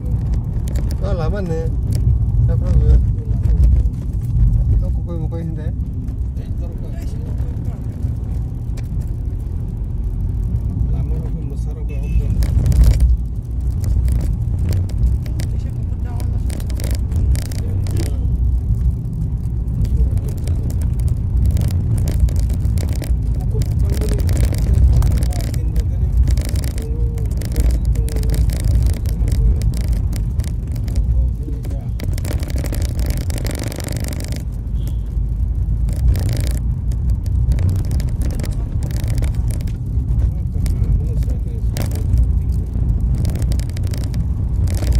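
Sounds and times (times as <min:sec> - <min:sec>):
engine and road rumble: 0:00.0 - 0:44.9
rattles and knocks: 0:12.3 - 0:34.6, 0:35.6 - 0:44.9.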